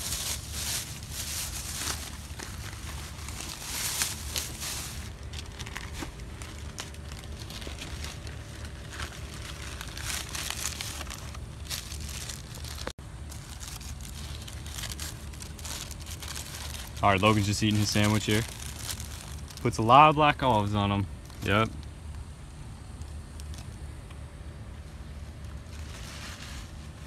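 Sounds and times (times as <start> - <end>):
low rumble: 0.0 - 19.6
rustling and crackling: 0.0 - 19.7
paper wrapper crinkling: 0.0 - 19.9.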